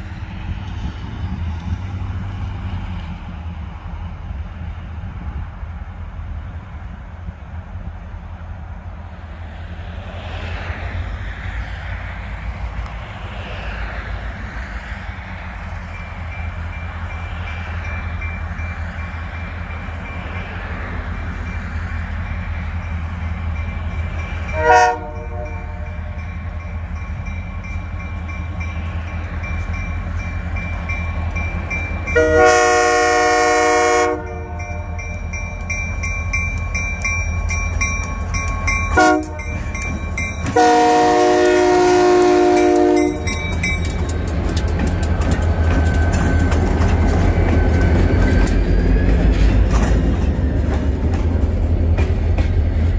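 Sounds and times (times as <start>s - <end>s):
diesel locomotive engine rumble: 0.0s - 52.9s
train air horn blasts: 24.5s - 26.2s, 32.1s - 35.0s, 38.9s - 39.7s, 40.5s - 43.4s.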